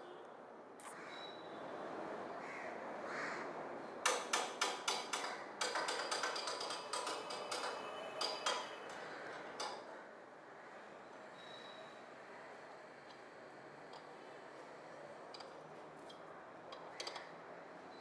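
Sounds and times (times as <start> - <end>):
hammer tapping on metal: 4.0 - 9.8.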